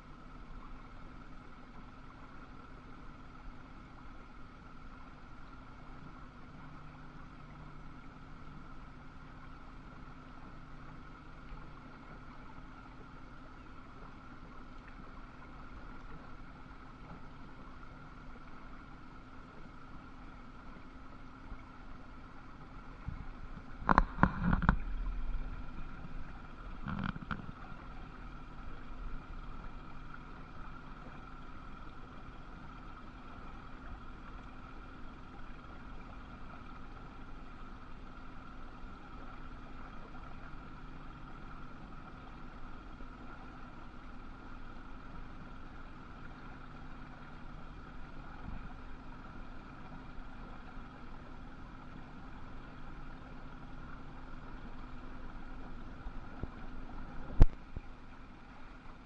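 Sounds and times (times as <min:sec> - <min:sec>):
machinery hum: 0:00.0 - 0:59.0
low rumble: 0:22.6 - 0:32.0.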